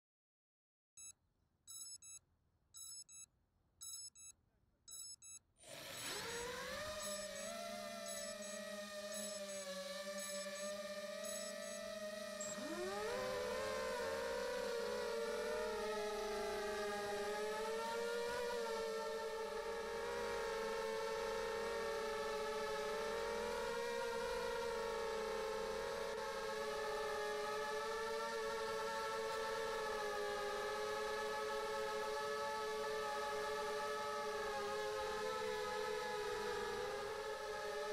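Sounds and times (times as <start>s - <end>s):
short electronic beeps: 1.0s - 2.2s, 2.8s - 5.4s
quadcopter motors whining: 5.6s - 37.9s.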